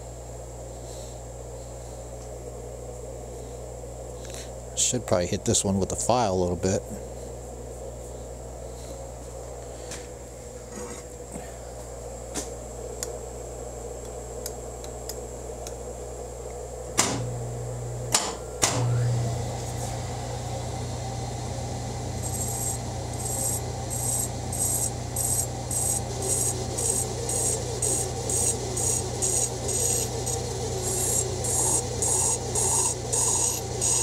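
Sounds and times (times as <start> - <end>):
lathe running with steady hum: 1.3 - 34.0
lathe switch clicks: 18.1 - 18.9
hand file rasping on steel: 26.3 - 34.0.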